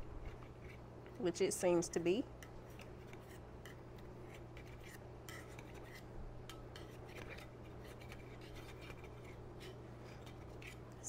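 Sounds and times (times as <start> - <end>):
knife scraping metal pan: 3.1 - 6.1.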